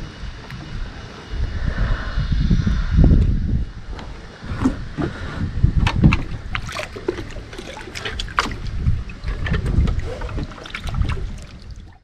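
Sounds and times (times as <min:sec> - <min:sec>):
water splashing and dripping: 0:05.8 - 0:12.0.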